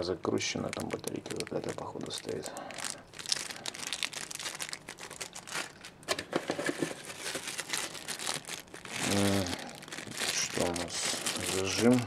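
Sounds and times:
plastic bags crinkling: 0.4 - 12.0
man humming: 9.0 - 9.6.

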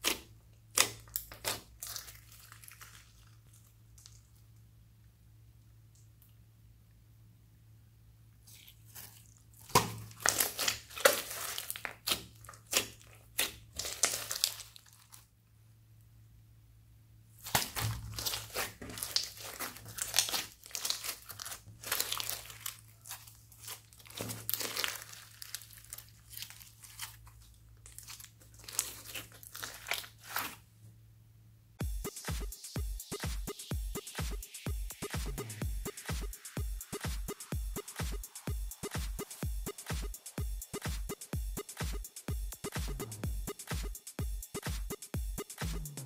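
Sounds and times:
slime crackling and popping: 0.0 - 4.2, 8.5 - 15.3, 17.4 - 30.6.

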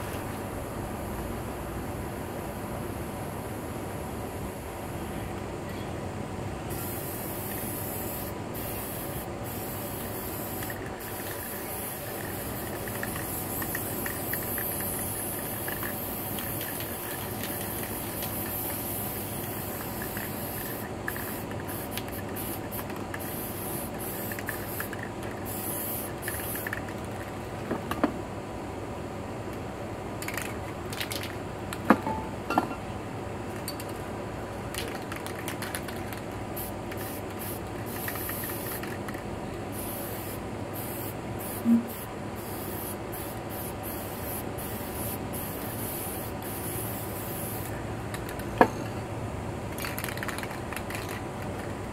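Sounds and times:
spray paint can hissing: 6.7 - 27.4, 34.7 - 48.6, 49.7 - 51.2.

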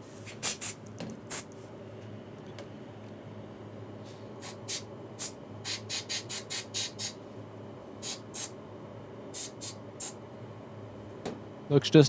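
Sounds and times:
aerosol spray bursts: 9.4 - 10.1.

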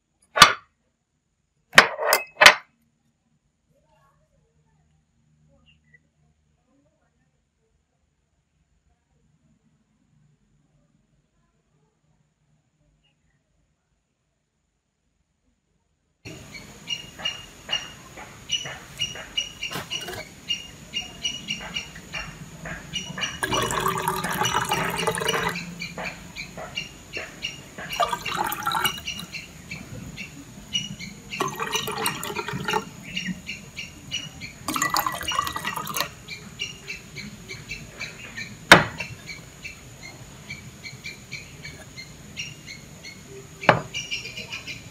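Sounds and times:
glass clink: 1.8 - 2.6, 34.7 - 36.1
tea pouring into glasses: 19.7 - 20.3, 23.4 - 25.7, 27.8 - 29.4, 31.4 - 32.9, 34.6 - 36.2.

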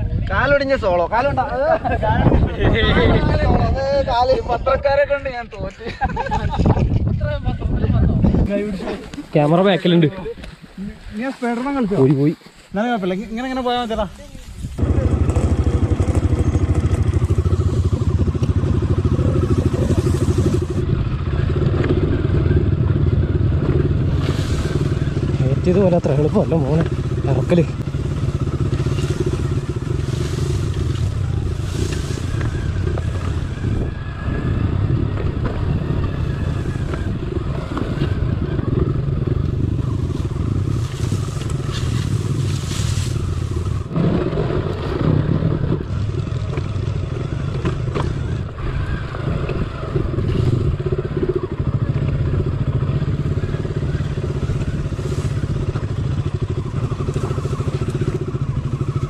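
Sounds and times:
motorcycle engine running: 14.7 - 59.0.

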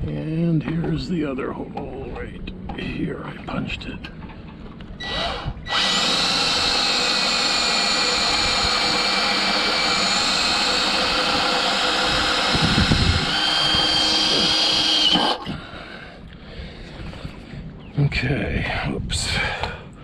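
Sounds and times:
cordless drill drilling metal: 5.0 - 15.6.

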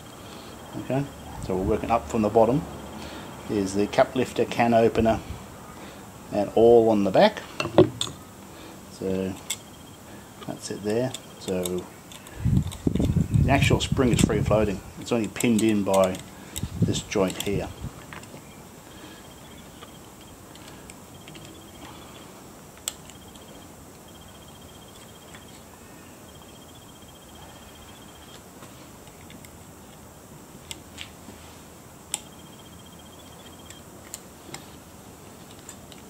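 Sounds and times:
clicks of small metal parts: 9.3 - 9.7, 10.9 - 13.2, 15.0 - 18.4
insect trilling: 9.4 - 13.5, 18.6 - 28.5, 32.1 - 34.0.

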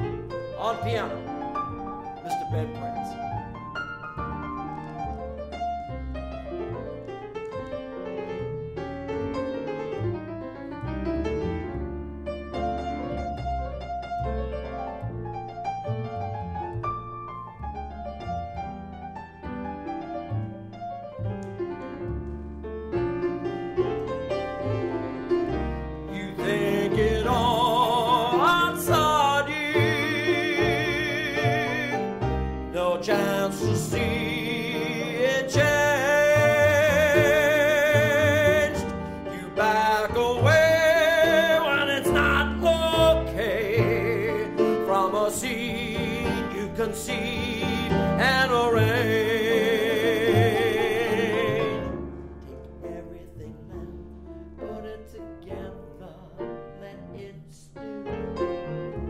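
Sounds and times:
double bass: 0.0 - 59.0
grand piano: 0.0 - 59.0
man singing with vibrato: 26.1 - 57.8.

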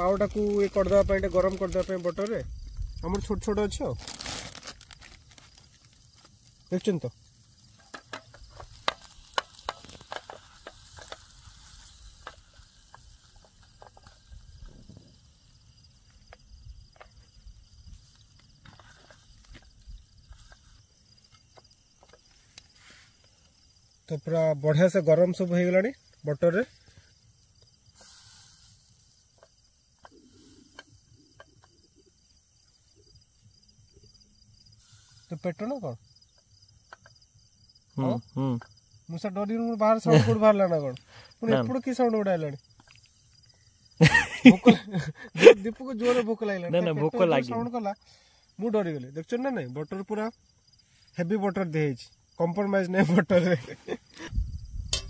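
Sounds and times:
butter sizzling in a frying pan: 0.0 - 24.0, 26.8 - 31.1, 34.6 - 35.5
crickets chirping: 0.0 - 55.0
sharp crackles and pops: 0.0 - 55.0.

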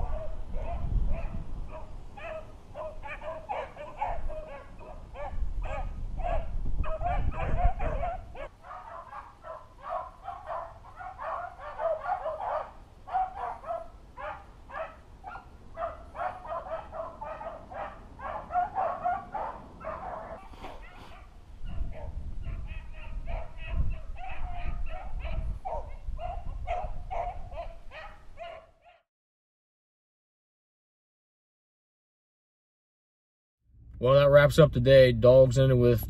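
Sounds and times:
wind buffeting microphone: 0.0 - 8.5, 15.0 - 28.4
dogs baying: 0.0 - 29.0.

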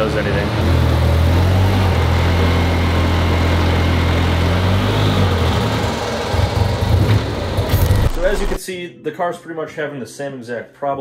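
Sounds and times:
rotary engine running under load: 0.0 - 8.6.

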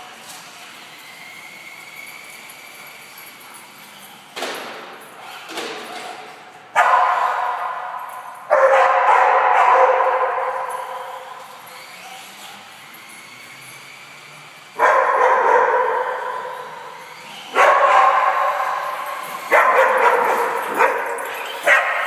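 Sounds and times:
dogs barking with echo: 6.7 - 11.6, 14.8 - 22.0.

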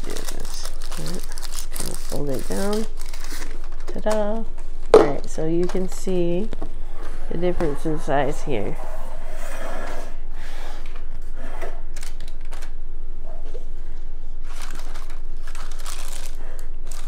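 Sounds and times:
paper muffin liners crinkling: 0.0 - 4.2, 14.4 - 17.0.

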